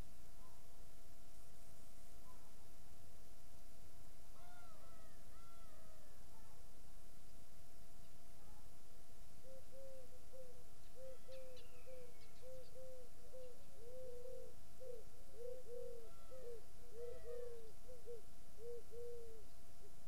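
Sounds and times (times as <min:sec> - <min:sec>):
faint bird chirps: 0:00.3 - 0:00.7, 0:02.1 - 0:02.7, 0:08.0 - 0:08.8, 0:09.4 - 0:20.0
pigeon cooing: 0:09.5 - 0:19.4.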